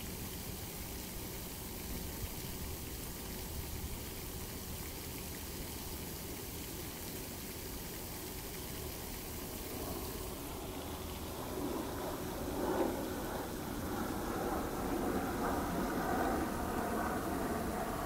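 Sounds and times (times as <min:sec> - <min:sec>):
fountain water splashing into pond: 0:00.0 - 0:18.0.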